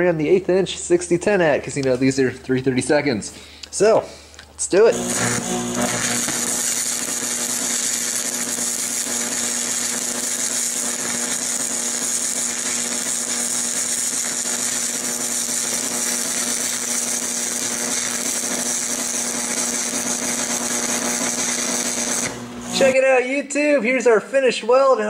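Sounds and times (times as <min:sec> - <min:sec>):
welding arc crackle and hiss: 0:04.7 - 0:23.0.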